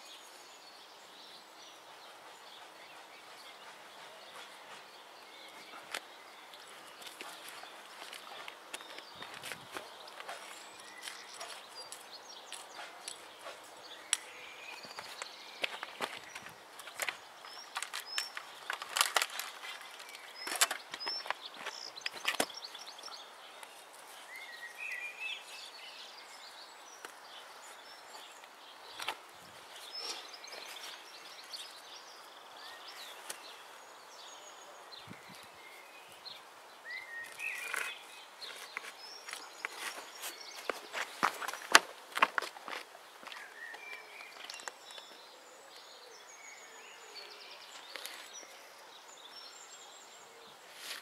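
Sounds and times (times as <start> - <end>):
small birds chirping: 0.0 - 51.0
footsteps and gear handling: 4.0 - 23.0, 37.3 - 45.1.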